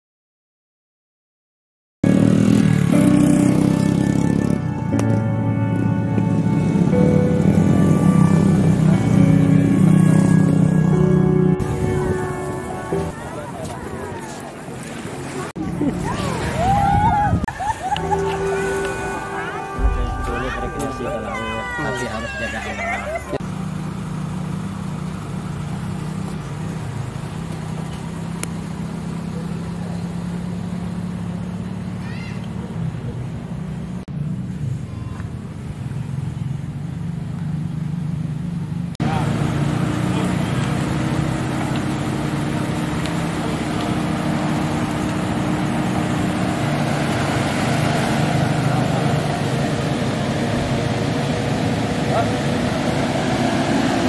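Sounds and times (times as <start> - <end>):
minivan engine idling: 17.5 - 53.9.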